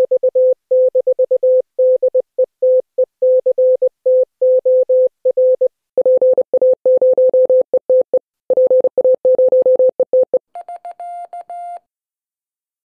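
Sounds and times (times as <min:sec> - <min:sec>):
morse code beeps: 0:02.7 - 0:11.8.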